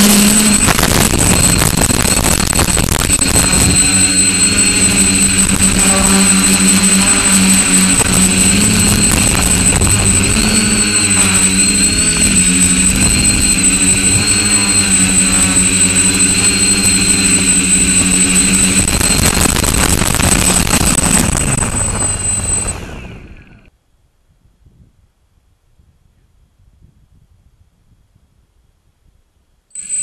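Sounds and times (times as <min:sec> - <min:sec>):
drone motors and propellers whining: 0:00.0 - 0:23.7.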